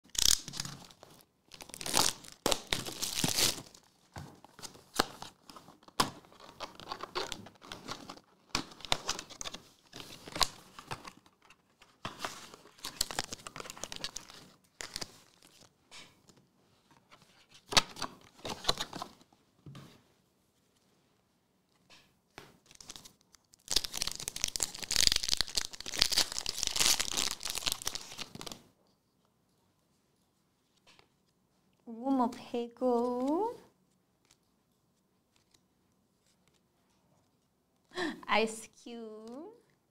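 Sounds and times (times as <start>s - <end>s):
plastic shrink wrap tearing and crinkling: 0.1s - 3.9s, 12.2s - 15.7s, 22.7s - 28.6s.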